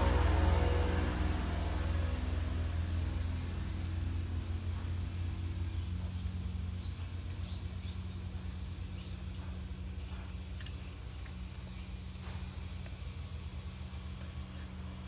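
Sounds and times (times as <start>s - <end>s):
low engine rumble with hum: 0.0s - 15.0s
faint small clicks: 10.5s - 11.4s.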